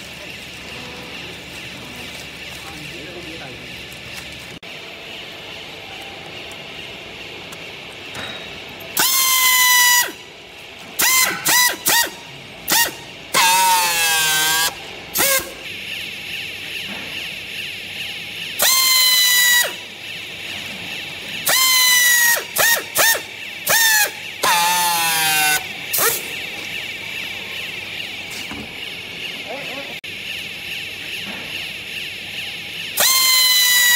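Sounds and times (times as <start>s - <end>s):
pneumatic strapping tool whining: 8.1s - 15.8s, 18.5s - 28.8s, 32.9s - 33.9s.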